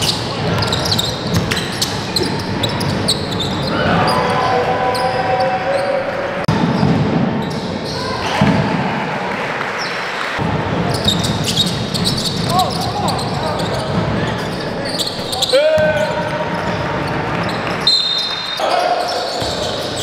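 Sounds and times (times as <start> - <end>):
shoes squeaking: 0.0 - 4.4, 10.9 - 20.0.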